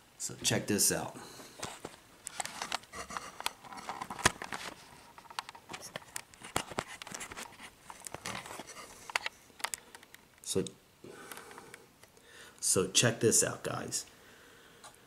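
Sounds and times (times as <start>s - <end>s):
rustling: 1.3s - 10.5s.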